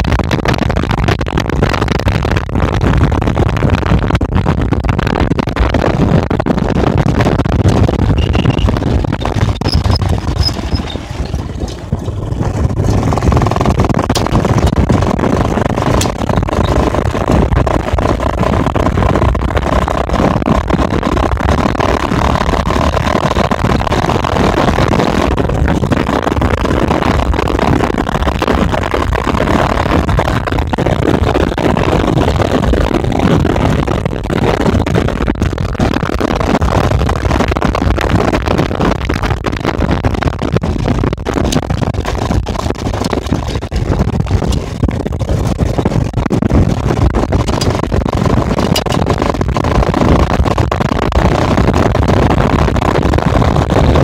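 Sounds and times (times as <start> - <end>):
wind buffeting microphone: 0.0 - 54.0
small clicks and rattles: 7.6 - 33.4, 40.0 - 50.9
tyres rolling over gravel: 9.6 - 17.2.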